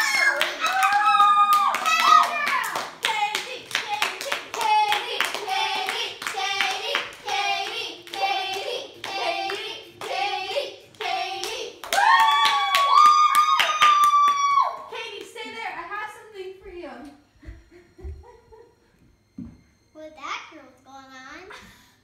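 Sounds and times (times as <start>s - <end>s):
people clapping: 0.0s - 15.6s
children singing: 3.0s - 11.8s.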